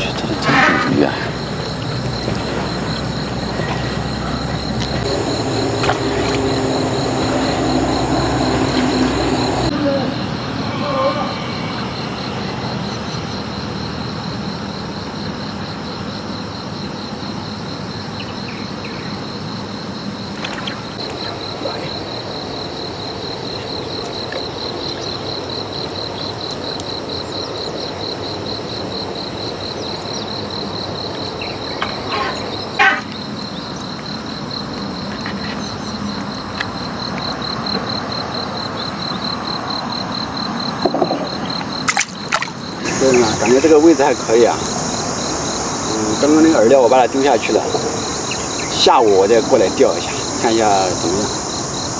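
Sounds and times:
insects trilling: 0.0 - 51.9.

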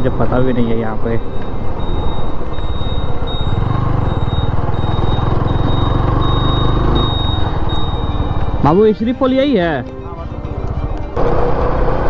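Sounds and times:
motorcycle engine at low revs: 3.0 - 8.6.

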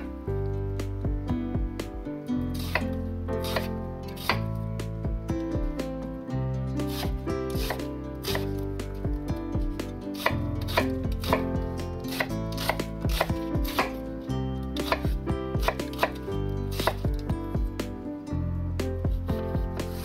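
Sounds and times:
background music: 0.0 - 20.0
knife chopping on cutting board: 2.6 - 4.5, 6.8 - 8.6, 9.6 - 14.0, 14.8 - 16.2, 16.8 - 17.2.

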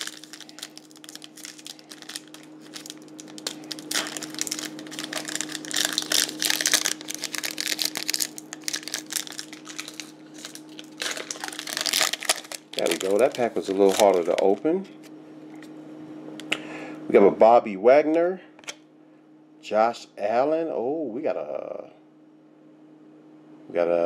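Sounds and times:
foil pack crinkling and tearing: 0.0 - 14.6
faint steady hum: 0.0 - 24.0.

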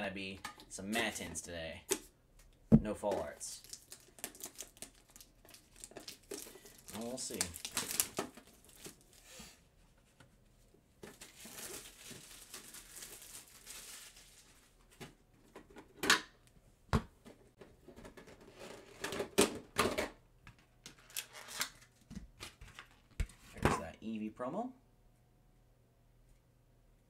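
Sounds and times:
plastic packaging rustling: 3.2 - 9.5, 11.0 - 15.0.

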